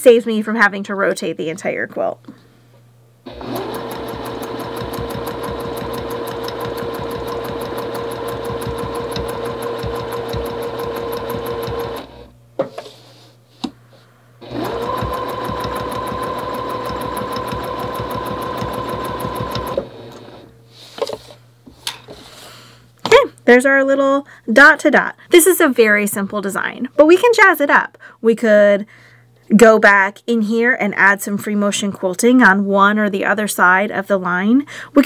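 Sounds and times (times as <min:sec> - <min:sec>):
sewing machine stitching: 0:03.3 - 0:12.3, 0:14.4 - 0:20.5.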